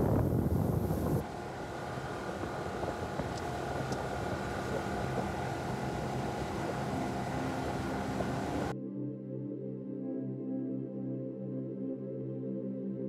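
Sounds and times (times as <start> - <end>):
outboard motor running: 0.0 - 8.7
wind and water rushing: 0.0 - 8.7.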